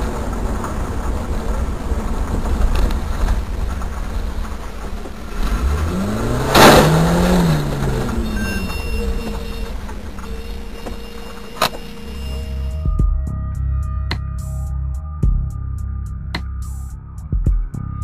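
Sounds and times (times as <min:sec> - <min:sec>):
truck engine passing: 0:00.0 - 0:12.9
car engine and tyre rumble: 0:00.0 - 0:18.0.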